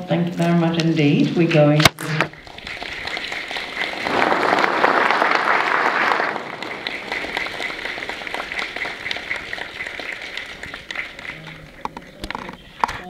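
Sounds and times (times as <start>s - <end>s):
audience applauding: 2.3s - 12.4s.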